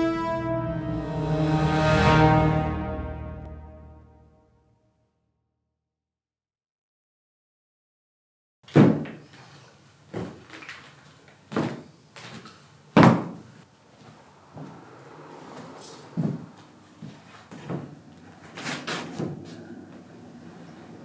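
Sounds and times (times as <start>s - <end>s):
heavy boots clunking on metal: 16.2s - 18.0s.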